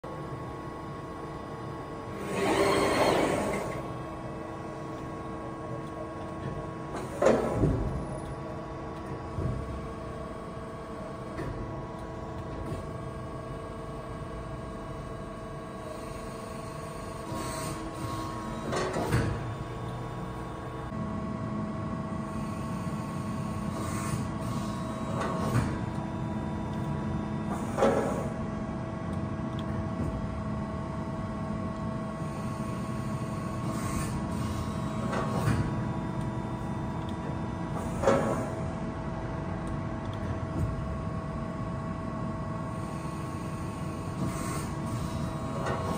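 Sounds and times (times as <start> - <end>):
hydraulic press humming: 0.1 - 15.0, 15.7 - 21.0, 22.2 - 45.9
machine clunks and sliding knocks: 6.4 - 8.4, 18.6 - 19.6, 27.5 - 28.4, 35.0 - 35.9, 37.8 - 38.6.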